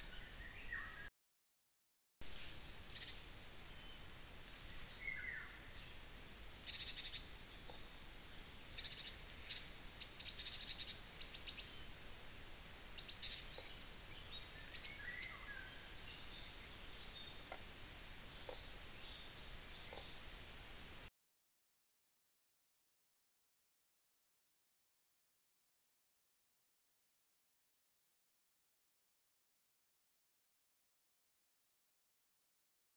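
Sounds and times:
faint hiss: 0:00.0 - 0:01.1, 0:02.2 - 0:21.1
songbirds chirping and trilling: 0:00.0 - 0:01.1, 0:02.8 - 0:21.0.

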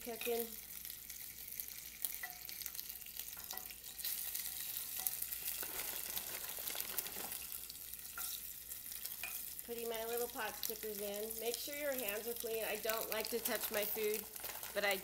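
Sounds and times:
oil sizzling in a skillet: 0:00.0 - 0:15.0
oil crackling and spitting: 0:00.4 - 0:09.8.

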